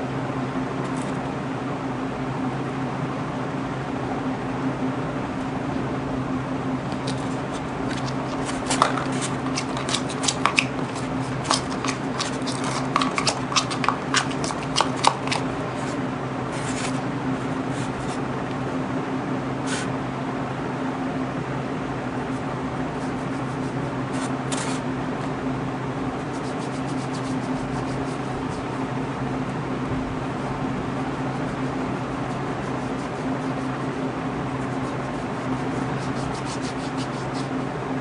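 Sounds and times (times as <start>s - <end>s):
steady low hum: 0.0s - 38.0s
spoon scraping plastic bowl: 7.0s - 16.0s.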